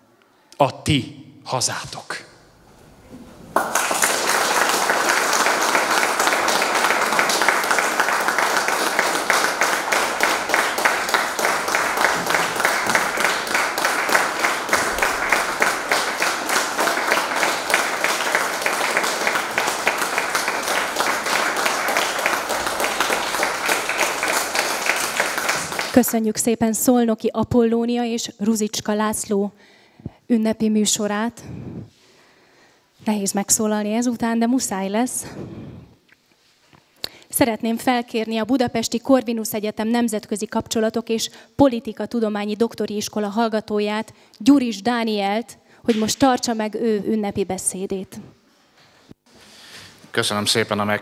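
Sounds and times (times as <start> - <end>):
audience applauding: 3.5 - 26.2.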